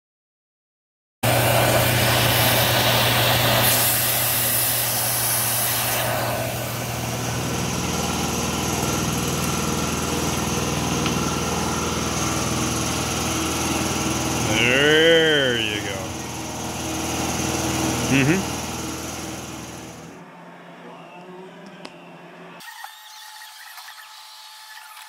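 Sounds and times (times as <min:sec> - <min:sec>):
end mill cutting plywood: 0:01.2 - 0:20.1
milling machine motor hum: 0:01.2 - 0:20.3.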